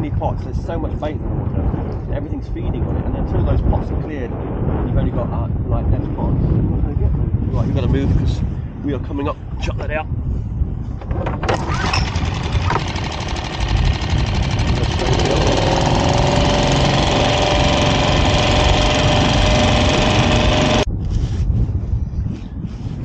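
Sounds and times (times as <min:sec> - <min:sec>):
outboard motor running: 0:11.2 - 0:20.9.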